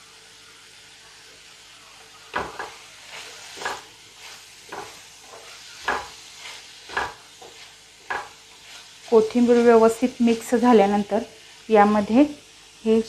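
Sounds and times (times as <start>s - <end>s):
light sizzle: 0.0s - 13.0s
wooden spatula scraping frying pan: 2.3s - 10.6s.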